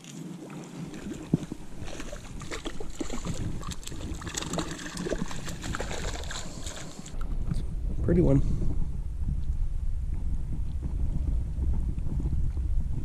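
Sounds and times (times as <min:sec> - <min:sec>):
fish splashing at water surface: 0:00.5 - 0:07.2.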